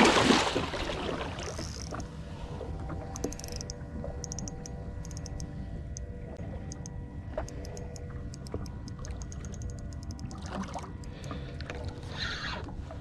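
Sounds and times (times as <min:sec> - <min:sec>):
boat motor humming: 0:00.0 - 0:13.0.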